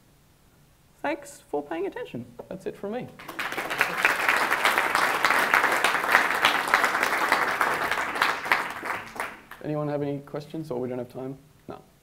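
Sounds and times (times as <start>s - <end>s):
audience applauding: 3.2s - 9.7s.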